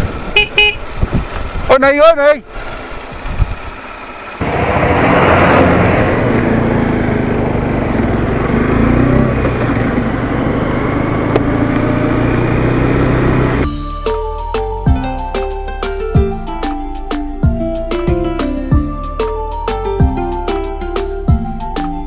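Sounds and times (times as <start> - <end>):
motorcycle engine running: 0.0 - 1.7, 6.0 - 13.8
wind and road noise: 0.0 - 13.7.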